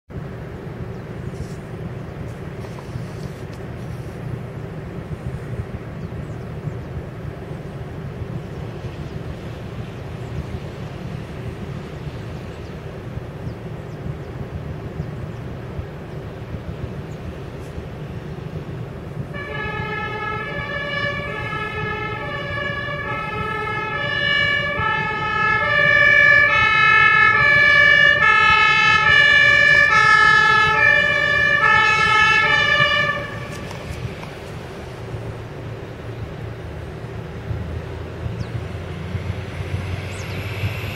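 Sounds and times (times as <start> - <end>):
rumble of engines and traffic: 0.1 - 40.9
two-tone emergency siren: 19.2 - 34.0, 38.4 - 40.9.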